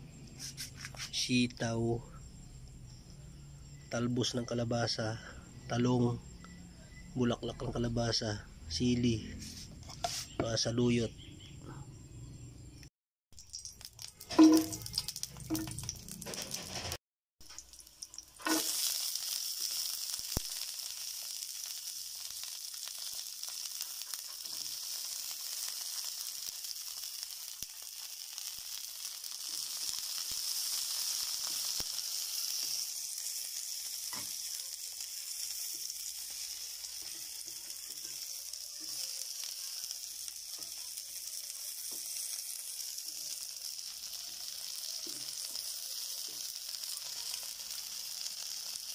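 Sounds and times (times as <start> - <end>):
vegetables sizzling in hot oil: 13.4 - 48.9.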